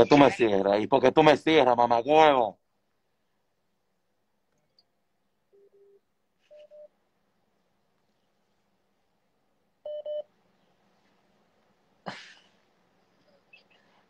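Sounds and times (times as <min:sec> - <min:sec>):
phone beeping: 0:05.6 - 0:06.9, 0:09.9 - 0:10.3.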